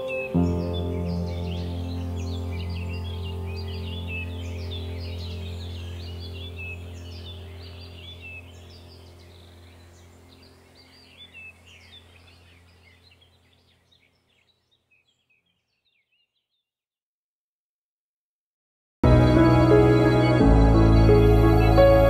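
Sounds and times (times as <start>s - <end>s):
bird chirps: 0.0s - 16.7s
low steady hum: 1.0s - 13.5s.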